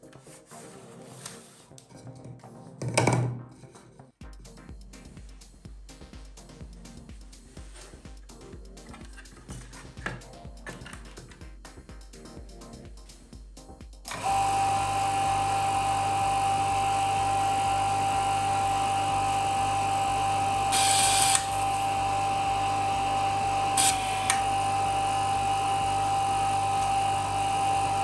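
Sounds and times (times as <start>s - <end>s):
tape reader high whine: 14.1s - 28.0s.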